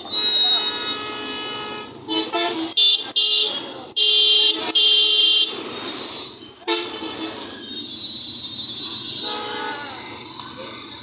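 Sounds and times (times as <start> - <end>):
car horns honking: 0.2 - 10.1.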